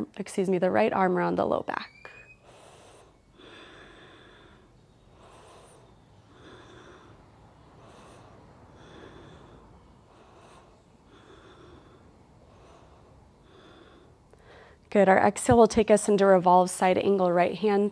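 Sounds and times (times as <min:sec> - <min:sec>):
woman breathing through nose: 0:02.1 - 0:14.9.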